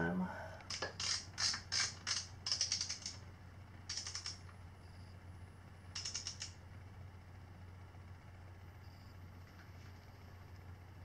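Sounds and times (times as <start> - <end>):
torque wrench ratchet clicking: 0.7 - 3.2, 3.9 - 4.4, 6.0 - 6.5.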